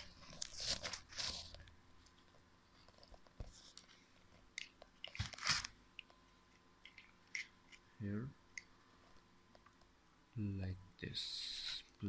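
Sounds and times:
packaging crinkling: 0:05.0 - 0:05.8.

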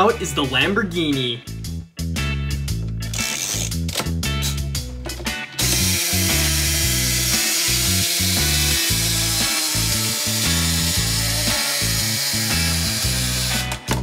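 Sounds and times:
background music with bass line: 0:00.0 - 0:14.0
plastic toy gears whirring: 0:03.1 - 0:04.1, 0:05.6 - 0:14.0.

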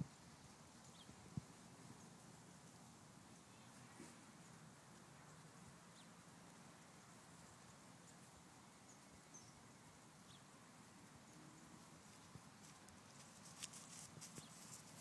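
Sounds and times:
soft clicks and rustles: 0:11.6 - 0:15.0.

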